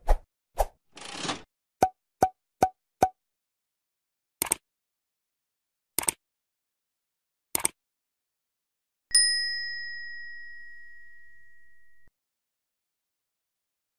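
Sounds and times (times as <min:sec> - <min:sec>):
mouse click: 0:06.0 - 0:06.2
bright bell ding: 0:09.1 - 0:12.1.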